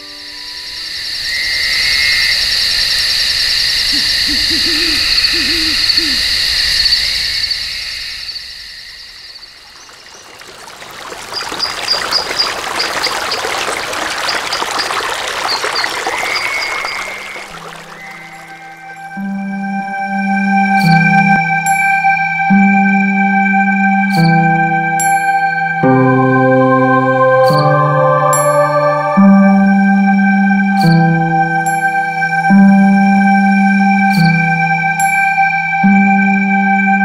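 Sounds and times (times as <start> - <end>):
owl hooting: 0.0 - 7.2
high insect chirring: 0.0 - 10.2
rushing water: 9.0 - 22.7.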